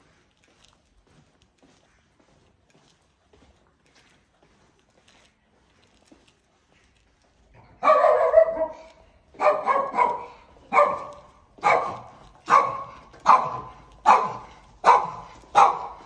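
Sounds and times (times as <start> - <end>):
dog barking: 7.6 - 16.0.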